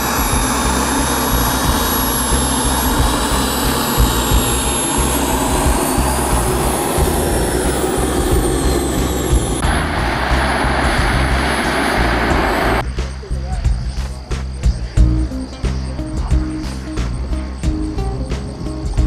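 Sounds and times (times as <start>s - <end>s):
model jet turbine whine: 0.0s - 12.8s.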